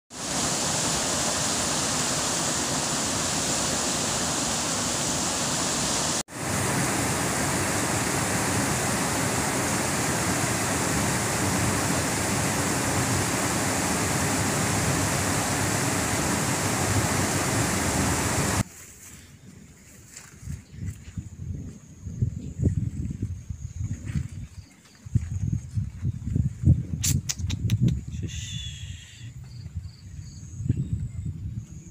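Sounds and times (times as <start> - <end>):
floodwater rushing: 0.1 - 18.6.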